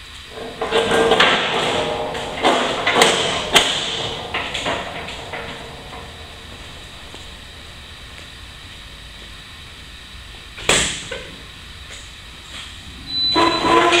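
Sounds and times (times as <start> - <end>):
metal clanking and scraping: 0.3 - 8.6, 13.1 - 14.0
sharp metal knocks: 0.4 - 7.8.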